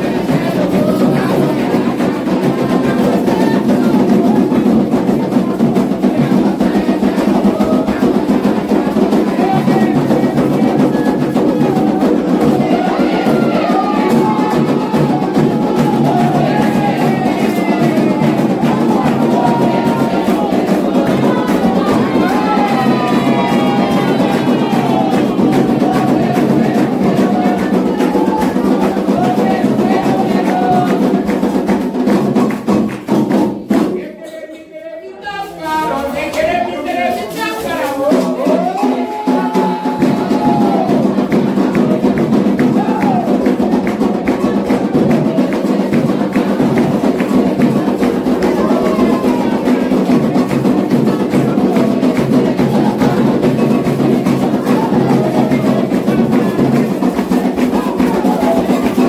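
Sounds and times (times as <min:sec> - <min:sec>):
bell beating a rhythm: 0:00.0 - 0:33.6
hand drums beating: 0:00.0 - 0:34.2, 0:35.7 - 0:59.0
people singing a chant: 0:00.0 - 0:59.0
single voice singing: 0:00.0 - 0:59.0
hand clapping: 0:11.9 - 0:34.4, 0:37.1 - 0:59.0.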